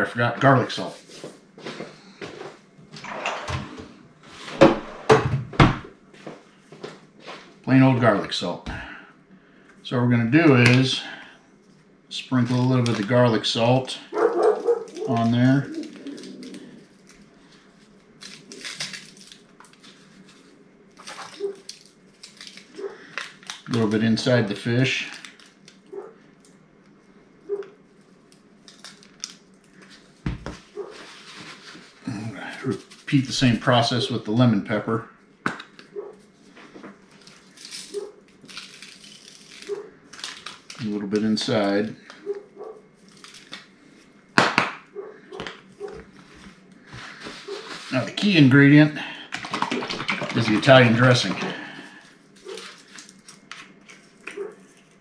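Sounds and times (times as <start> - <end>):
cupboard being opened and shut: 2.9 - 5.9
aluminium foil rustling: 12.3 - 26.1, 28.0 - 33.6, 36.1 - 44.2, 45.7 - 55.0
rustling: 14.1 - 23.5.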